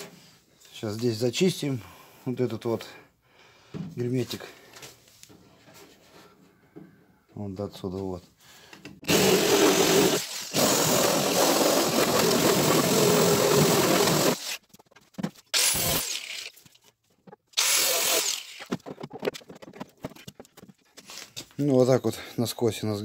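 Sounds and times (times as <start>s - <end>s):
electric drill grinding metal: 9.1s - 14.6s, 15.6s - 16.5s, 17.6s - 18.7s.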